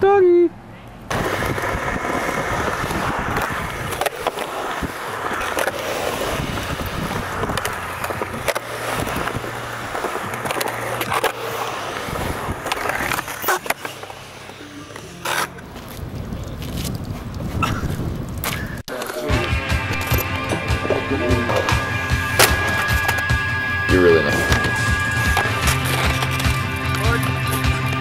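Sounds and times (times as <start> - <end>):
skateboard wheels rolling on concrete: 0.6 - 28.0
skateboard clacks: 1.1 - 20.7.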